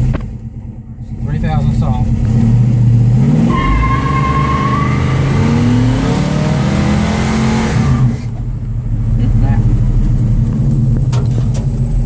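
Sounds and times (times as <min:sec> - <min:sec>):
car engine revving hard: 0:02.0 - 0:08.4
tyres squealing: 0:03.4 - 0:06.1.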